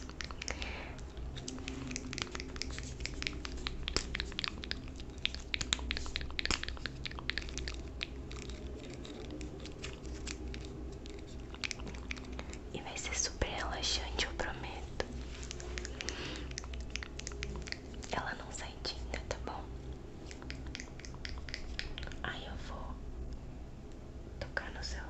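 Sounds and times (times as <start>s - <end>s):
mouth clicks and wet smacks: 0.0s - 13.0s, 14.9s - 19.5s, 20.1s - 22.2s
low steady hum: 0.0s - 25.0s.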